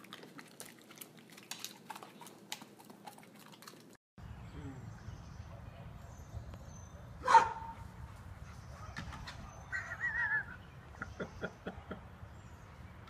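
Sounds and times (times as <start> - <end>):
birds chirping: 4.2 - 13.0.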